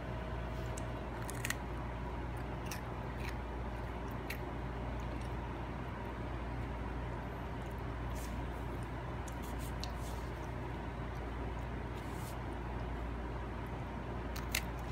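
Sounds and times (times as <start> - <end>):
steady low hum: 0.0 - 14.9
toddler crunching a cracker: 1.2 - 1.6.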